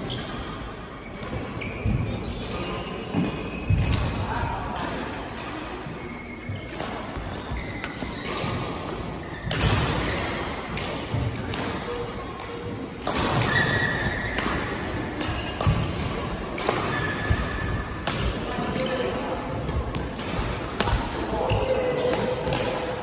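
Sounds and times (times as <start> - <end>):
echoing hall noise: 0.0 - 23.0
racket hitting shuttlecock: 9.3 - 23.0.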